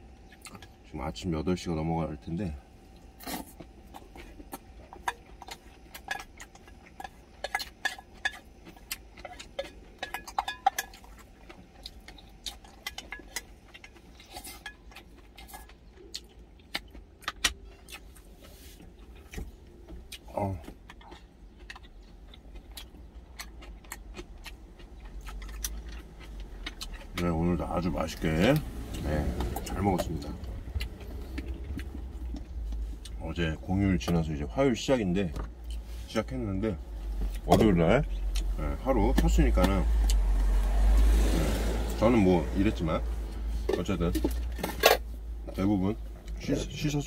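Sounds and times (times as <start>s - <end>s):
low steady rumble: 0.0s - 47.0s
chopsticks clinking on metal bowl: 9.3s - 11.1s.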